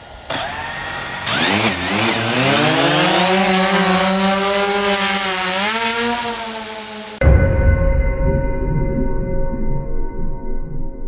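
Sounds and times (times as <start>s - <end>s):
drone motors buzzing whine: 0.0s - 7.2s.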